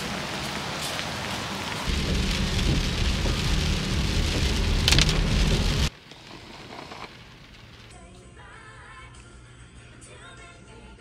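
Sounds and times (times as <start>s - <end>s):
steady rain falling: 0.0s - 7.9s
heavy low rumble: 1.9s - 5.9s.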